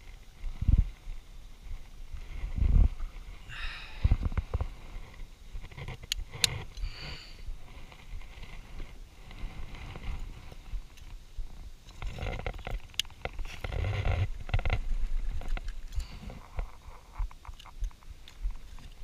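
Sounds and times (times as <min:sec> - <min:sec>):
handling rubbing and rustling: 0:07.5 - 0:19.0.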